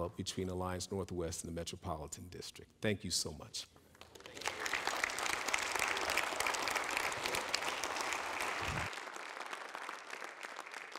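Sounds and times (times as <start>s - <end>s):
audience applauding: 4.0s - 10.9s.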